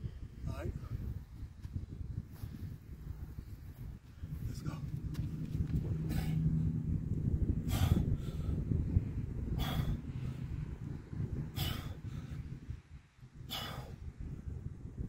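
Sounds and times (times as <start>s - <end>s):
steady low rumble: 0.0s - 15.0s
man breathing hard: 6.0s - 6.8s, 7.5s - 14.4s.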